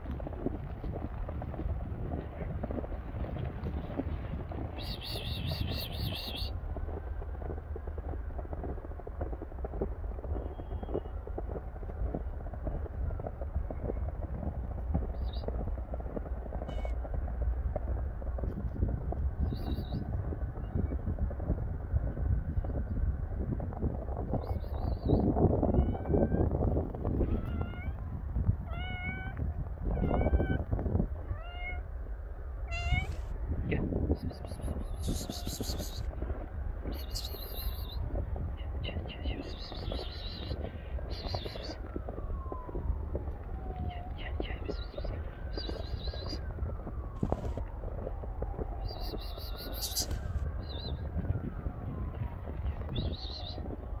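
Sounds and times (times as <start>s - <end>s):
wind on microphone: 0.0s - 54.0s
cat meowing: 27.3s - 28.0s, 28.7s - 29.4s, 30.0s - 30.6s, 31.3s - 31.8s, 32.7s - 33.2s
footsteps crunching in snow: 34.3s - 51.3s.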